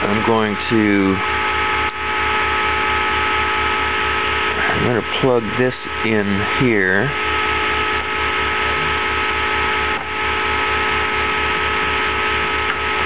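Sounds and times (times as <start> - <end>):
low pulsing: 0.0 - 13.0.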